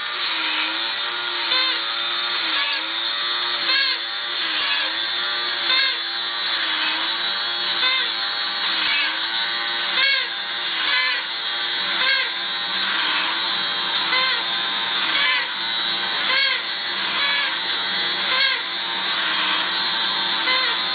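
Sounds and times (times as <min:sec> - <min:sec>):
small electric motor whirring: 0:00.0 - 0:20.9
toy accordion wheezing chord: 0:03.6 - 0:05.0, 0:09.9 - 0:11.3, 0:11.9 - 0:12.4, 0:14.1 - 0:15.6, 0:16.2 - 0:17.6, 0:18.2 - 0:19.7, 0:20.4 - 0:20.9.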